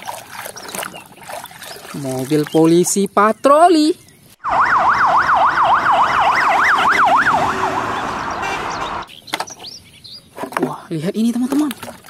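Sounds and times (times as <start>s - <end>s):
siren on fast yelp: 4.4s - 9.1s
street traffic noise: 4.4s - 10.3s.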